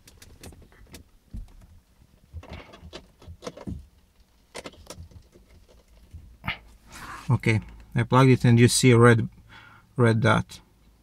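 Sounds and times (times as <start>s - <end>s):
plastic clicks and knocks: 0.0s - 6.2s.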